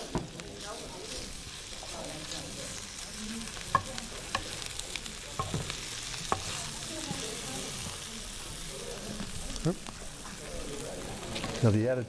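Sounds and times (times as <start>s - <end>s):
sprouts sizzling in a pan: 0.0s - 12.0s
spoon clicking against pan: 3.6s - 4.7s.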